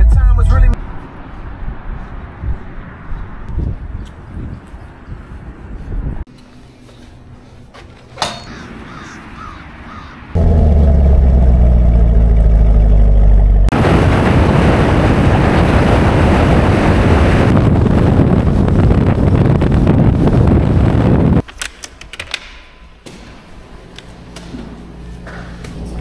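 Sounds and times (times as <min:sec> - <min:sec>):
wind and road noise: 0:00.0 - 0:21.8
car engine idling: 0:10.4 - 0:13.7.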